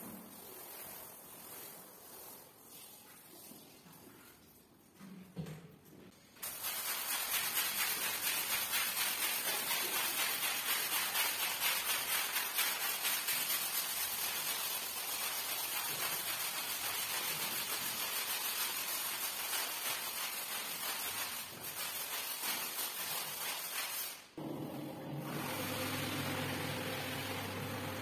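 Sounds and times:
broom scrubbing wet rug: 0.0s - 4.7s, 6.4s - 24.3s
floor scrubber motor humming: 24.4s - 28.0s.

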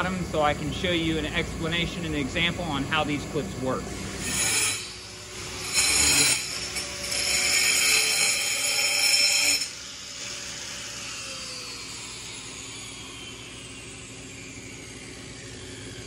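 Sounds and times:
angle grinder cutting stone: 4.0s - 14.8s.

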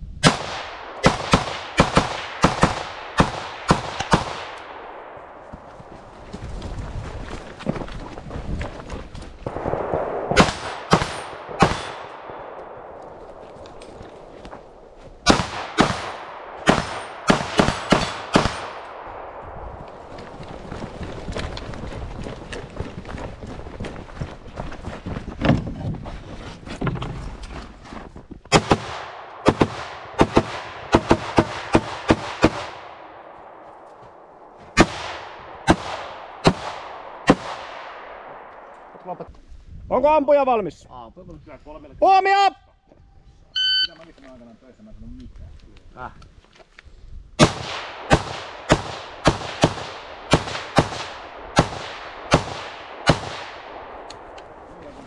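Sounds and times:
rifle shots with echo: 0.2s - 5.5s, 9.4s - 20.1s, 28.5s - 39.0s, 47.4s - 54.7s
pistol shots with short echo: 9.6s - 13.0s, 15.2s - 19.3s.

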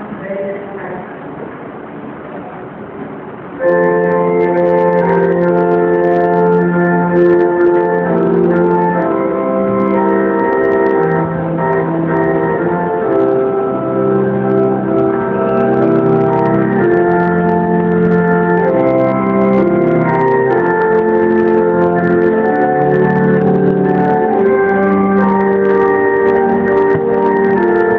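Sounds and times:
organ playing slow chords: 3.6s - 27.9s.

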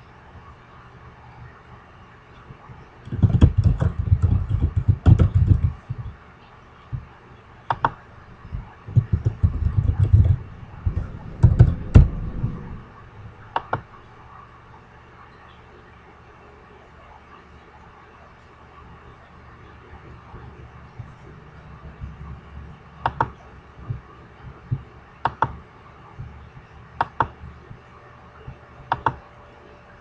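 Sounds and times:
typing on a computer keyboard: 3.1s - 5.8s, 8.9s - 11.8s, 23.0s - 24.0s, 25.3s - 25.6s, 27.0s - 27.5s, 28.9s - 29.2s.

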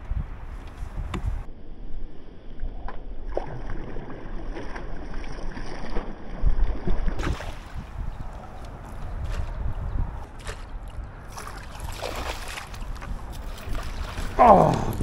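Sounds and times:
wind rumbling on microphone: 0.0s - 3.3s, 4.2s - 15.0s
outdoor background noise: 0.0s - 15.0s.

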